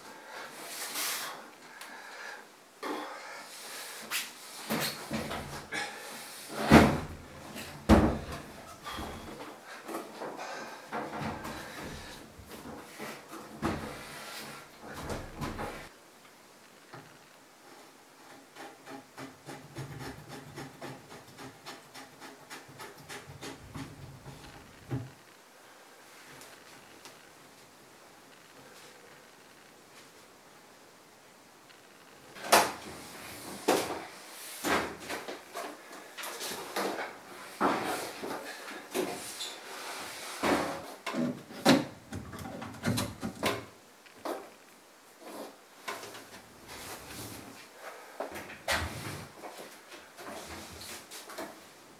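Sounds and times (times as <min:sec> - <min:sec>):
washing machine knocking and rubbing: 0:18.5 - 0:24.4.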